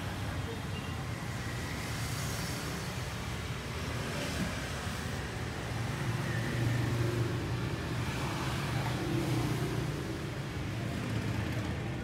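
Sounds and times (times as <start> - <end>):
traffic engines rumbling: 0.0 - 12.0.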